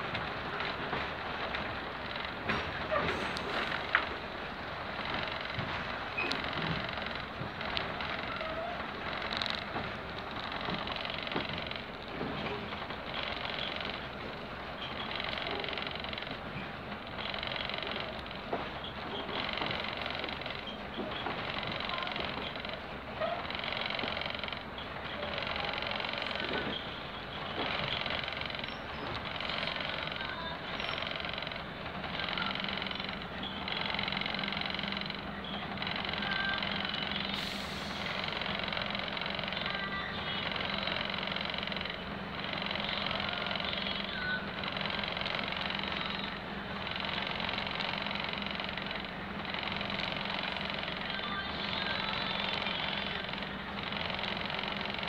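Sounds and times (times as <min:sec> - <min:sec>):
diesel engine running: 0:00.0 - 0:55.0
short hiss: 0:37.3 - 0:38.2.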